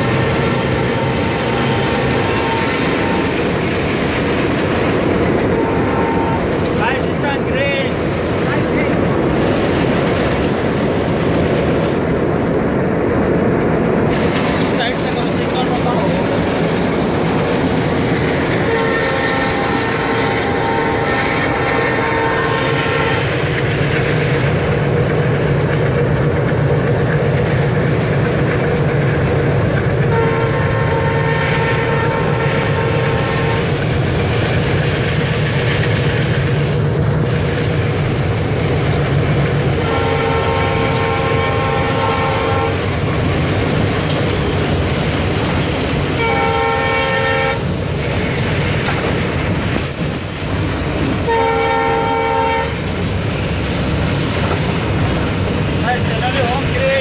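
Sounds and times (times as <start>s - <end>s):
diesel locomotive engine rumble: 0.0s - 57.0s
wheel and rail noise: 0.0s - 57.0s
locomotive air horn blasts: 5.5s - 6.5s, 18.6s - 23.3s, 30.1s - 33.7s, 39.8s - 42.8s, 46.2s - 47.6s, 51.3s - 52.8s.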